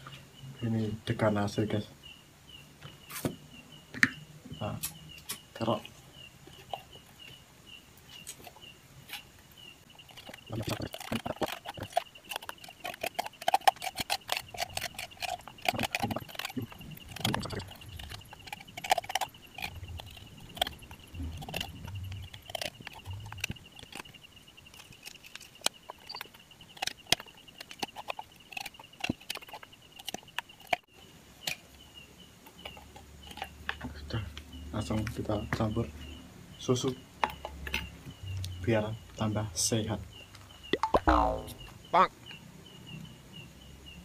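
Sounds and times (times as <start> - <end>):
metal spoon scraping coconut: 10.0 - 29.6.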